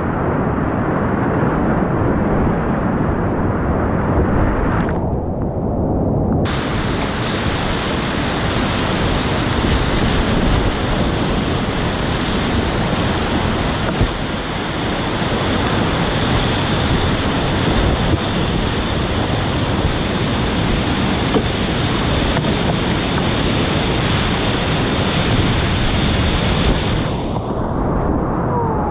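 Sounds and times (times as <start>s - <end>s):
whitewater rapids rushing: 6.5s - 27.5s.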